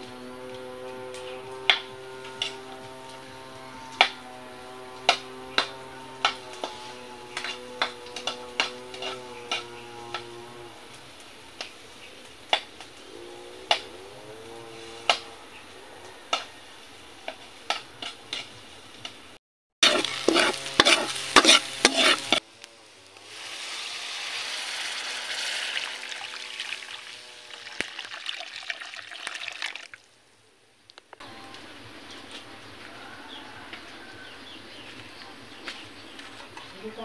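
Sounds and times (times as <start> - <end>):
metal spatula scraping a wok: 5.5 - 10.3, 17.4 - 18.6, 19.8 - 22.4, 23.3 - 26.2
liquid hissing and sizzling in pan: 19.8 - 29.9.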